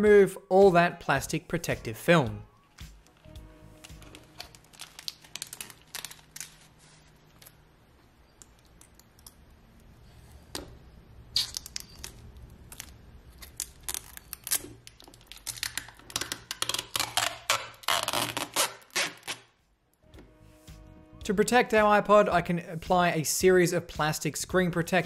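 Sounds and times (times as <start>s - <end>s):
plastic film being peeled off: 3.0s - 7.6s, 11.4s - 19.5s.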